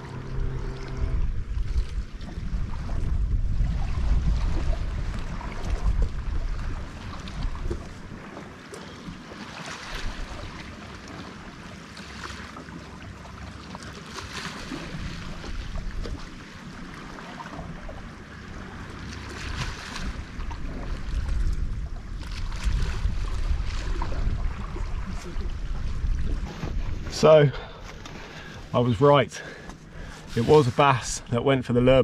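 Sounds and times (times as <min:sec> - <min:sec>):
wind buffeting microphone: 0:00.0 - 0:08.4, 0:14.7 - 0:28.7.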